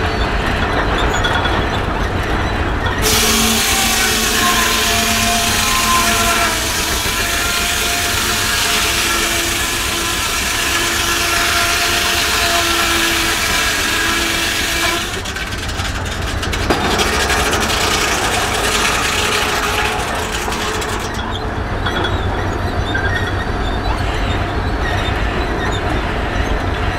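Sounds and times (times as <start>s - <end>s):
machinery rattling clatter: 0.0s - 26.9s
steam hiss: 3.0s - 15.3s
saw whining: 3.0s - 22.2s.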